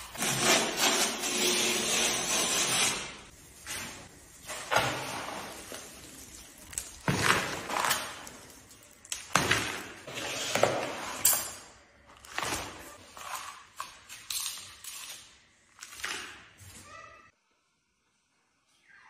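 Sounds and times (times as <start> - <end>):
broom sweeping tile floor: 0.0 - 11.5, 12.2 - 15.2.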